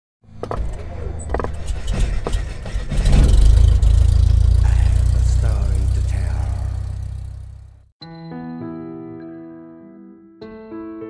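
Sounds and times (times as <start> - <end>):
deep rumble: 0.7 - 7.9
sharp cracking hits: 1.5 - 7.6.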